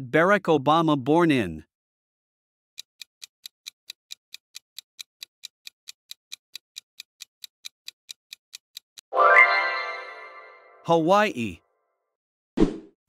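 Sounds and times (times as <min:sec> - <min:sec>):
clock ticking: 0:02.8 - 0:09.1.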